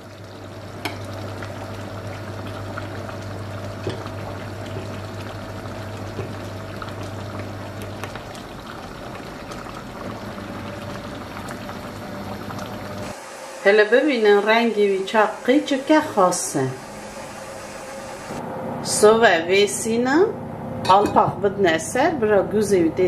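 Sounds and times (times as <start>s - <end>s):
stew bubbling: 0.0s - 13.1s.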